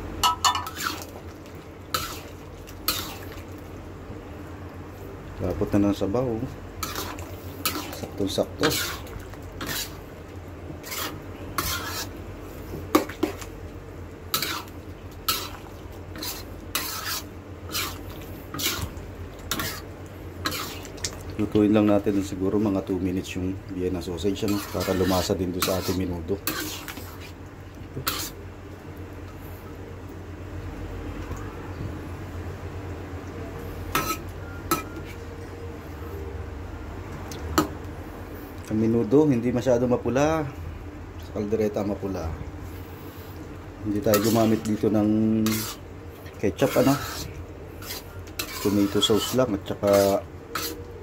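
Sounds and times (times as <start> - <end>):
steady low hum: 0.0 - 51.0
spatula scraping a wok: 0.2 - 1.2, 1.8 - 3.5, 6.8 - 13.5, 14.3 - 21.1, 24.2 - 27.4, 28.0 - 28.4, 33.8 - 35.3, 43.9 - 50.9.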